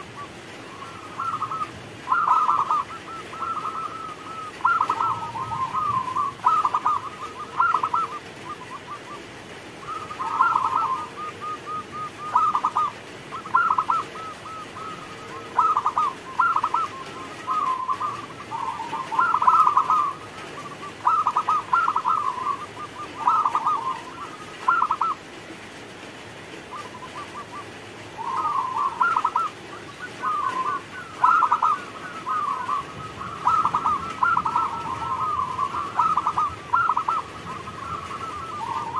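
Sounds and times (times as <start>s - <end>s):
dove cooing: 0.0s - 25.8s, 26.4s - 38.9s.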